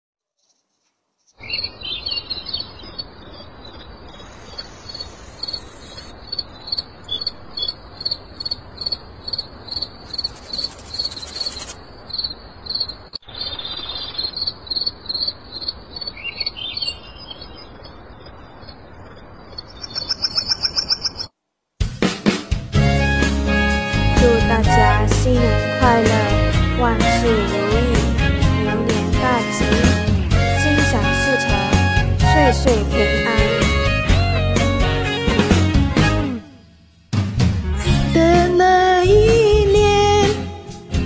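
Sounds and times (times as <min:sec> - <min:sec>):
bird chirp: 0:00.4 - 0:21.3
crickets chirping: 0:00.4 - 0:21.4
steady hiss: 0:03.5 - 0:14.2.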